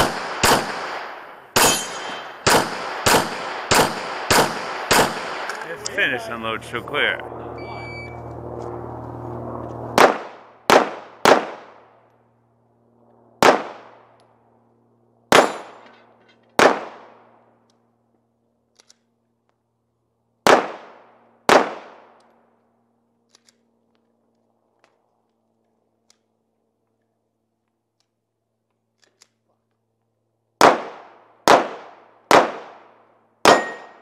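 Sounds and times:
pistol shots echoing: 0.0s - 5.7s, 10.0s - 11.8s, 13.4s - 14.0s, 15.3s - 15.8s, 16.6s - 17.2s, 20.4s - 22.1s, 30.6s - 34.0s.

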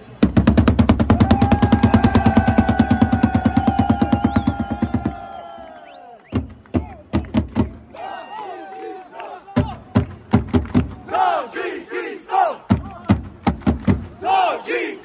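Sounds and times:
supporters' drum beats: 0.2s - 8.0s, 9.5s - 11.3s, 12.5s - 14.5s
football fans chanting and shouting: 1.3s - 15.0s.

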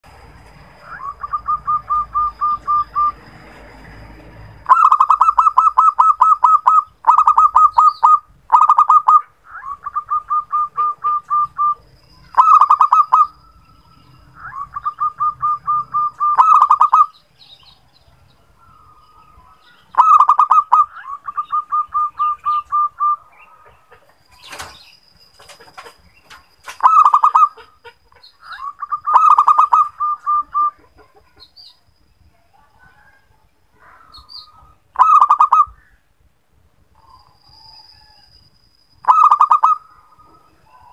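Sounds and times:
dove cooing: 4.7s - 11.8s, 14.4s - 17.1s, 19.3s - 24.0s, 26.8s - 31.4s, 33.8s - 35.8s, 39.1s - 40.9s.

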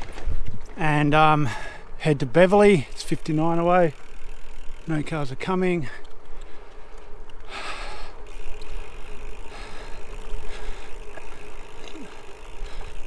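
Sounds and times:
wind rumbling on microphone: 0.0s - 0.8s
tyre and road noise: 0.0s - 13.0s.

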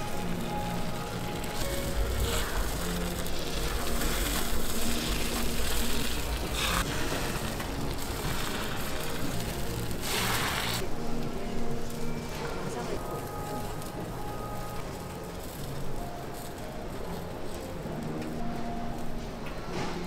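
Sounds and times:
batter sizzling on griddle: 0.0s - 10.9s
soft background music: 0.0s - 20.0s.

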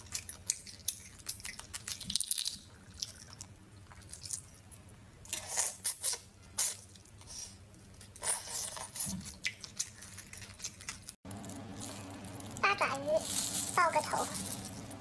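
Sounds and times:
wet sucking and chewing: 0.0s - 4.7s, 5.3s - 11.2s.

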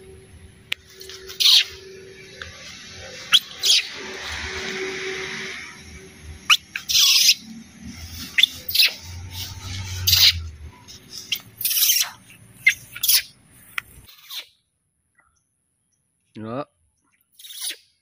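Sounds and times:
baby monkey screeching: 0.9s - 5.1s, 6.4s - 13.4s, 14.1s - 14.6s, 17.3s - 18.0s.

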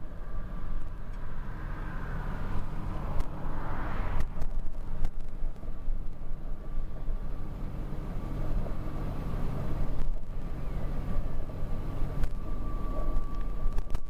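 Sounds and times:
thin steady whine: 0.0s - 14.0s
tractor diesel engine running: 4.4s - 14.0s.

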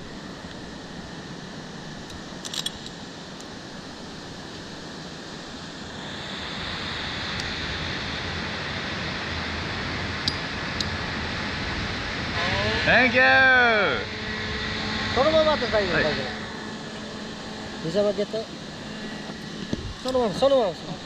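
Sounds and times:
rushing hiss: 3.2s - 21.0s.

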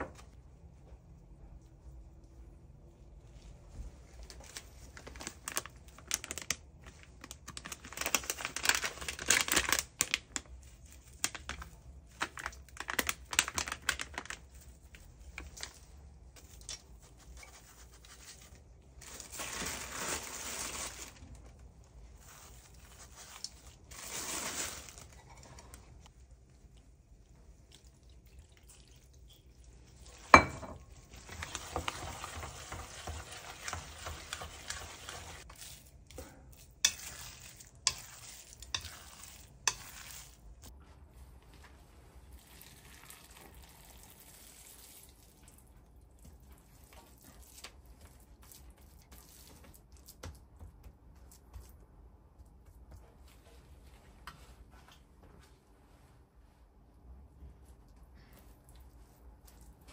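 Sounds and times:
kitchen clatter and scraping: 23.9s - 26.0s, 30.1s - 35.5s.

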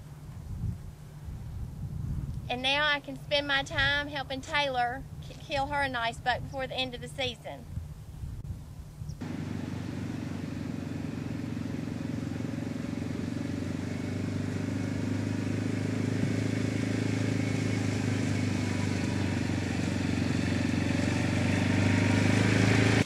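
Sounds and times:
atv engine running: 9.2s - 23.0s.

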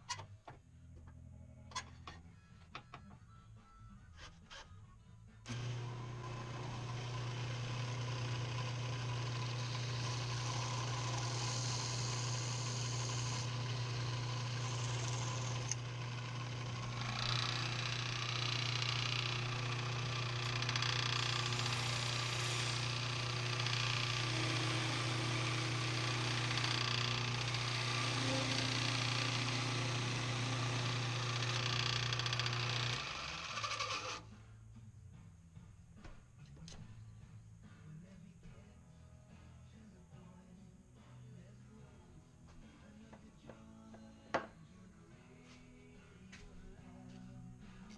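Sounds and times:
lathe motor hum: 5.5s - 34.2s
tool scraping spinning wood: 5.5s - 34.2s.

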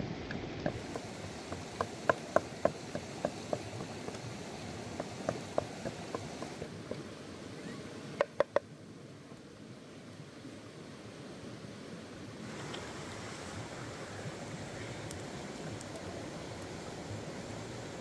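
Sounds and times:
steam hissing on hot rock: 0.6s - 6.8s, 12.4s - 18.0s
pestle pounding in a mortar: 0.7s - 4.2s, 5.0s - 6.5s.

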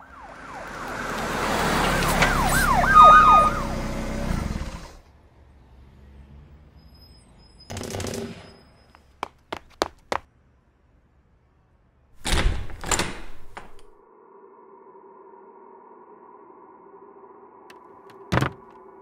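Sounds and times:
loud noisy door sound: 12.2s - 14.0s, 18.1s - 18.8s
drone of held musical tones: 14.1s - 19.0s
sharp knocks: 18.1s - 18.8s
short thud: 18.1s - 18.8s.

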